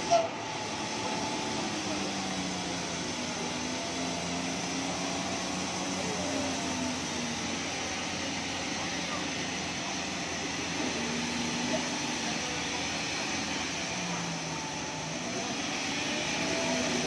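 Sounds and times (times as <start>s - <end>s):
truck diesel engine droning: 0.0s - 17.0s.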